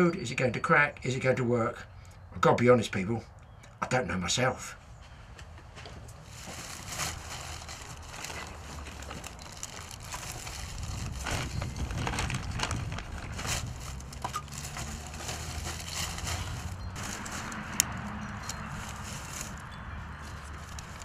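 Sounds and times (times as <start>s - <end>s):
newspaper crumpling and crackling: 6.2s - 21.0s.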